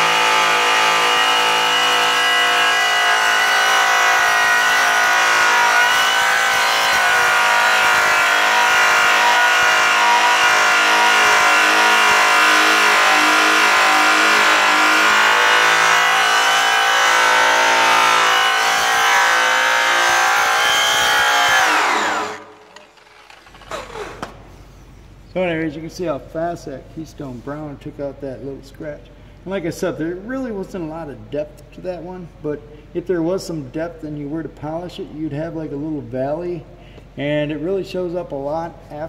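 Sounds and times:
grinder motor whine: 0.0s - 24.4s.

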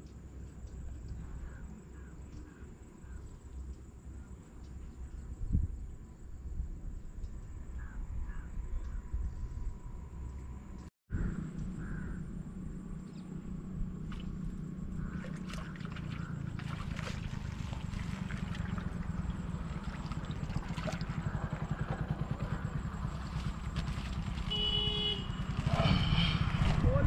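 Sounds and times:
motorcycle engine rumble: 11.1s - 27.0s
horn beep: 24.5s - 26.0s.

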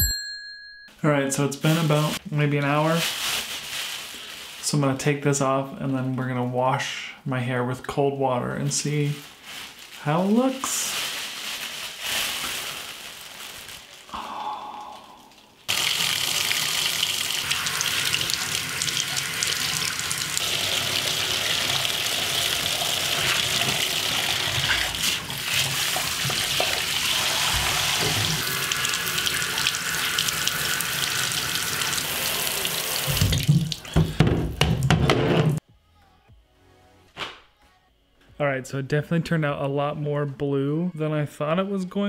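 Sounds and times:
shower water running into bathtub: 15.7s - 34.9s.

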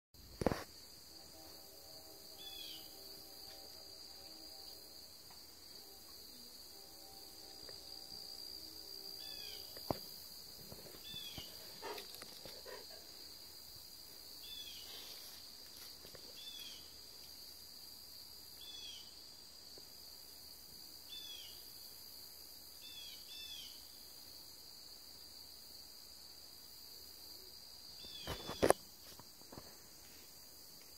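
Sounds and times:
crickets chirping: 0.2s - 30.9s
distant locomotive horn: 1.2s - 9.8s.

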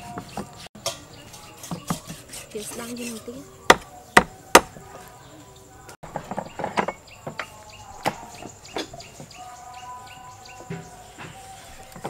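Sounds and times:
bird chirping: 0.0s - 12.0s
cleavers striking wooden block: 1.6s - 4.9s.

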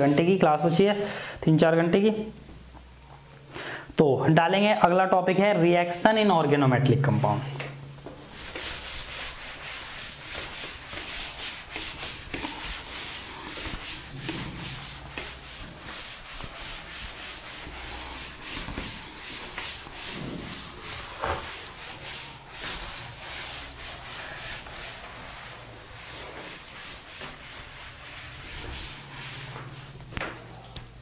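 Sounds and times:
scratchy handwriting strokes: 8.2s - 30.0s.

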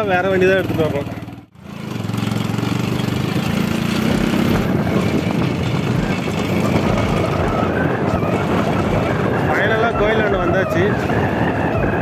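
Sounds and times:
vehicle engine running: 0.0s - 9.6s
tyre and road rumble: 0.0s - 12.0s.

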